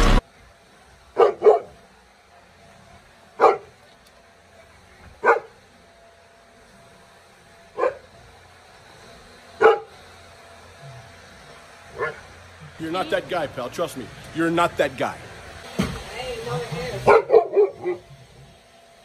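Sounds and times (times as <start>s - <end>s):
dog barking deeply: 1.2s - 1.8s, 9.6s - 9.9s, 17.1s - 18.0s.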